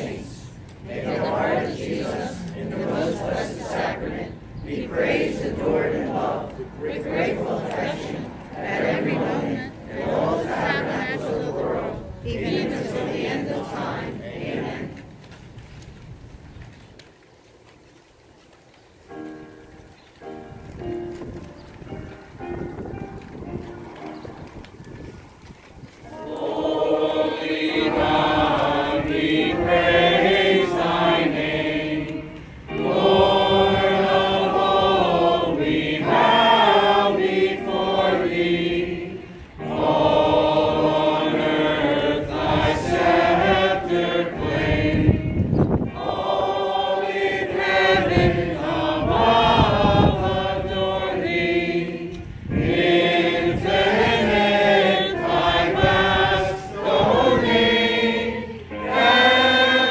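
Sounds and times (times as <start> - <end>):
group singing a hymn: 0.0 - 15.1, 26.0 - 59.9
electronic keyboard accompaniment: 19.0 - 59.9.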